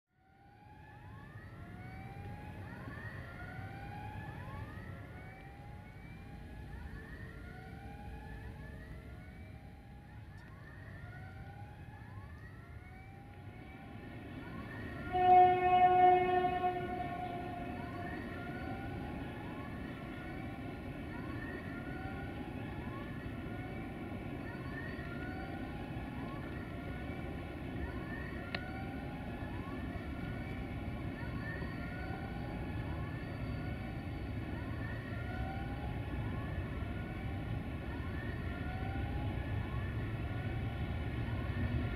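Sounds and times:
locomotive horn two-tone blast: 0:15.0 - 0:18.2.

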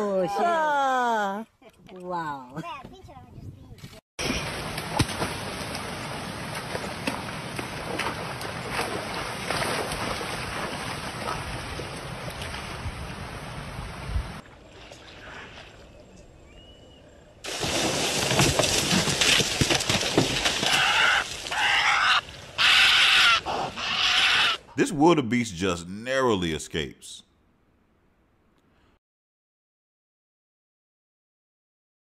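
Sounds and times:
loud burst of splashing: 0:17.4 - 0:21.6.

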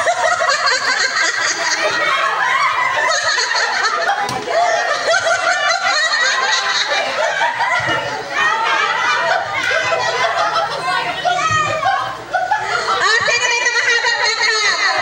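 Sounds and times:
crowd of women laughing: 0:00.0 - 0:15.0.

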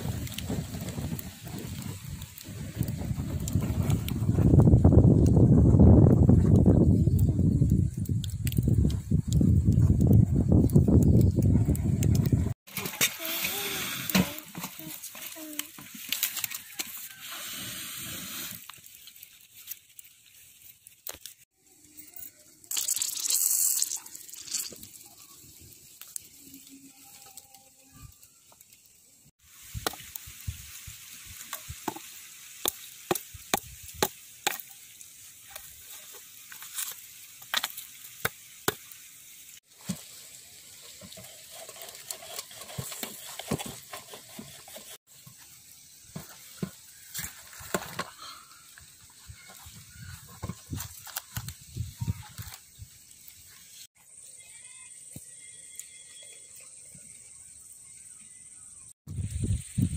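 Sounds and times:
embers crackling and popping: 0:00.0 - 0:59.9
faint sizzle: 0:12.8 - 0:43.0, 0:45.1 - 0:59.9.

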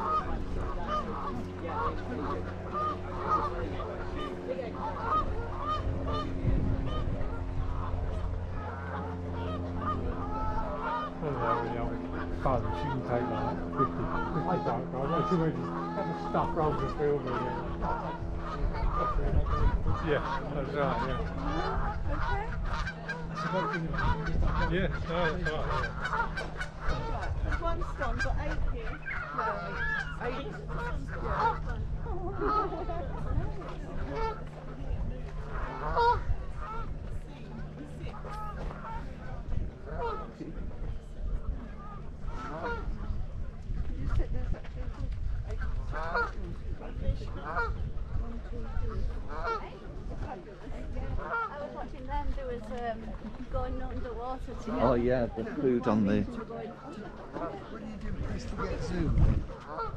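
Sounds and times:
waterfowl honking: 0:00.0 - 0:34.4, 0:35.4 - 0:36.9, 0:39.9 - 0:40.3, 0:41.8 - 0:42.9, 0:45.6 - 0:46.4, 0:47.3 - 0:48.2, 0:48.8 - 0:49.7, 0:51.1 - 0:51.6, 0:59.6 - 0:59.9
steady low hum: 0:00.0 - 0:59.9.

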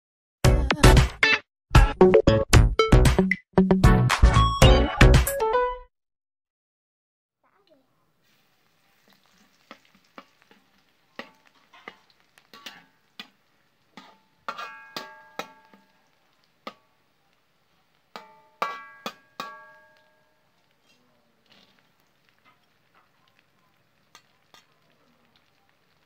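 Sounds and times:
garlic sizzling in oil: 0:07.6 - 0:26.0
metal spatula knocking on wok: 0:14.0 - 0:15.9, 0:18.1 - 0:20.2.

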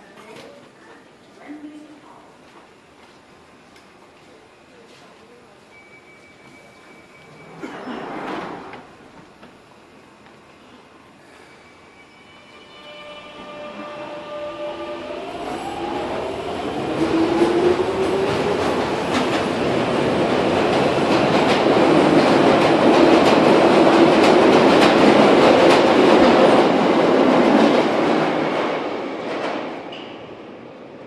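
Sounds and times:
train wheel noise with clicks: 0:02.5 - 0:04.4, 0:08.7 - 0:09.6, 0:18.1 - 0:26.8.

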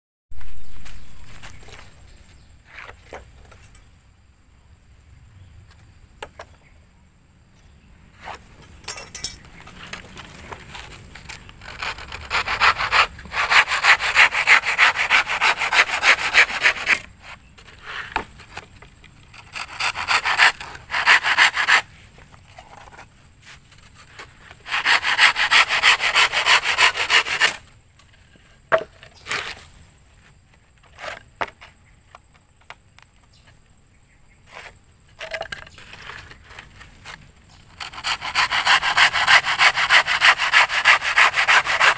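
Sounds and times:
light knocks and scrapes: 0:00.4 - 0:03.9
handsaw cutting wood: 0:11.6 - 0:17.1, 0:19.4 - 0:21.9, 0:24.6 - 0:27.6, 0:37.8 - 0:41.9.

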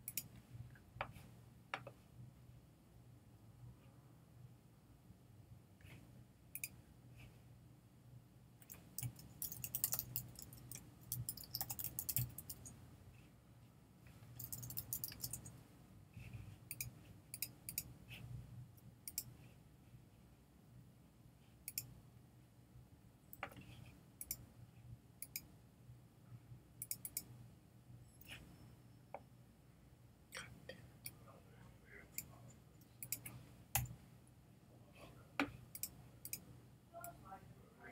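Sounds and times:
computer mouse clicks: 0:00.0 - 0:01.1, 0:06.5 - 0:06.8, 0:08.6 - 0:12.8, 0:14.4 - 0:15.6, 0:16.7 - 0:17.9, 0:19.0 - 0:19.4, 0:21.6 - 0:21.9, 0:23.3 - 0:24.5, 0:25.2 - 0:25.5, 0:26.8 - 0:27.3, 0:32.2 - 0:34.0, 0:35.4 - 0:37.2.

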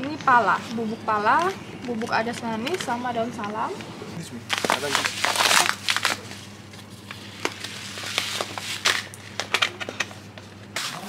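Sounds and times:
low electrical hum: 0:00.0 - 0:11.0
bags and packets crinkling: 0:04.4 - 0:10.1.

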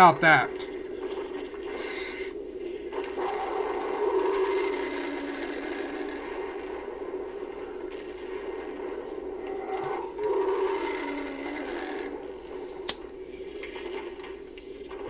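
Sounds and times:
film soundtrack drone: 0:00.0 - 0:15.0
sharp click: 0:12.8 - 0:13.1.

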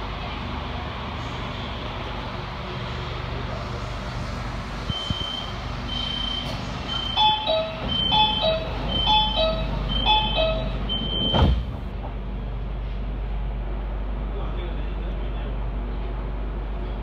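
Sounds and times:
electric train hum: 0:00.0 - 0:17.0
high warning beep: 0:04.9 - 0:11.6
train doors thudding shut: 0:06.0 - 0:12.2.

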